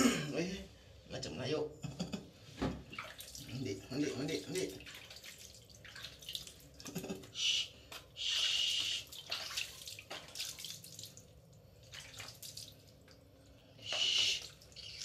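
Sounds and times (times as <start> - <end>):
water dripping: 2.9 - 3.7, 4.4 - 15.0
water pouring and splashing: 2.9 - 7.2, 8.5 - 13.2.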